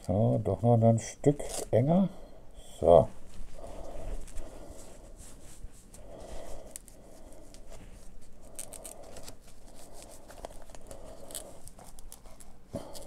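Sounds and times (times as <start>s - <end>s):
fabric straps scratching and rustling: 3.2s - 13.0s.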